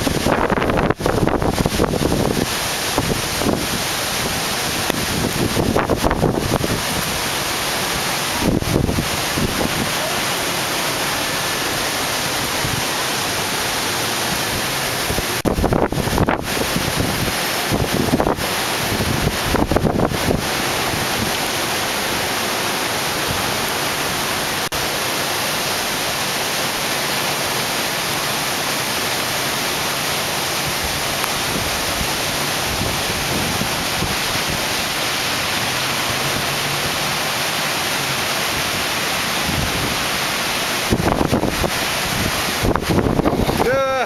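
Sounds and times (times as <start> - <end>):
wind buffeting microphone: 0.0 - 10.0, 14.2 - 22.0, 30.6 - 35.0, 38.5 - 43.8
heavy rain falling: 0.0 - 44.0.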